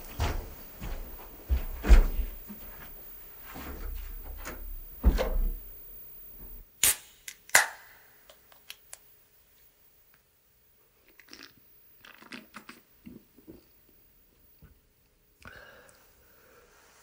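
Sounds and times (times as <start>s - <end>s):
irregular knocks and thumps: 0.1s - 2.9s, 3.5s - 6.6s
sharp cracks: 6.8s - 9.0s.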